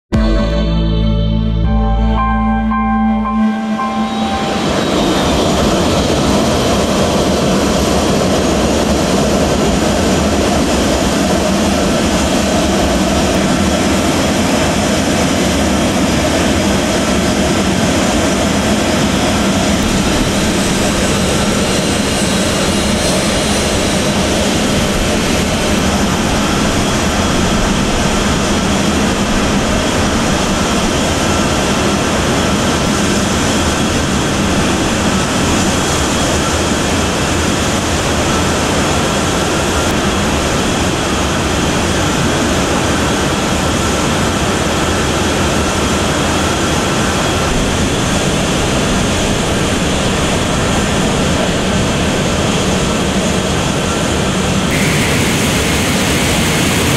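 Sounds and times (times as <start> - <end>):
jet engines roaring: 0.1 - 56.9.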